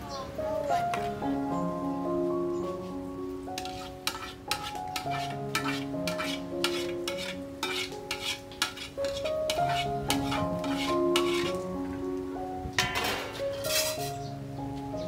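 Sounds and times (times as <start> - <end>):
background music: 0.0 - 15.0
metal ladle scraping a pot: 3.6 - 11.6, 12.8 - 14.2.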